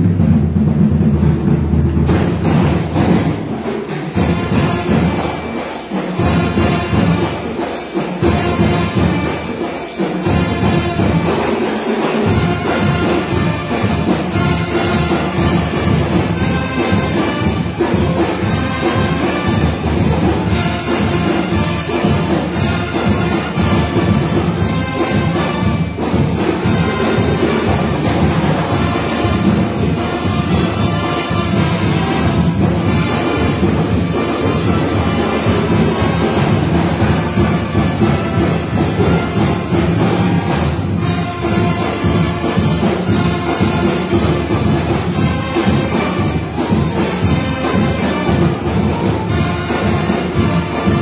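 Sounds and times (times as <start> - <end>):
drum beat: 0.0 - 51.0
marching band playing: 0.0 - 51.0.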